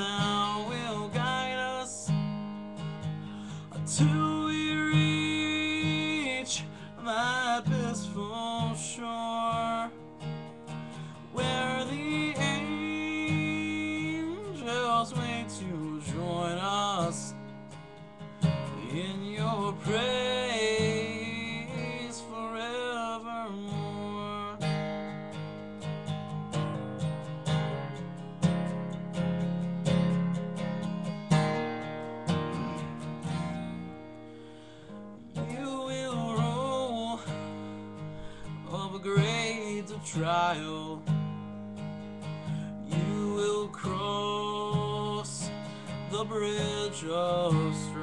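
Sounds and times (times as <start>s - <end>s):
man singing a hymn: 0.0s - 2.2s, 3.4s - 10.1s, 10.9s - 17.6s, 18.5s - 24.8s, 35.3s - 41.4s, 42.5s - 48.0s
acoustic guitar strumming: 0.0s - 48.0s.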